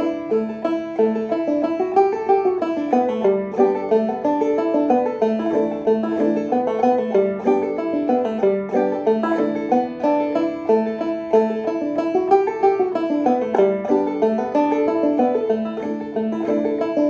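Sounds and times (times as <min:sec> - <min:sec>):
banjo playing: 0:00.0 - 0:17.0.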